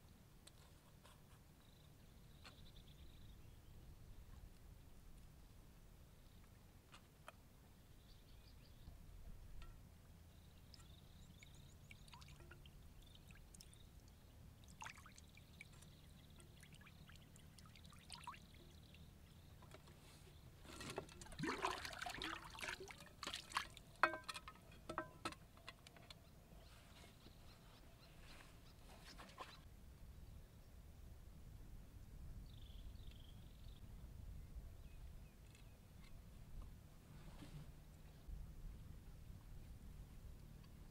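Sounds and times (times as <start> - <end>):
water trickling onto wooden board: 10.6 - 19.0, 20.7 - 25.1
pan knocking: 24.0 - 25.3.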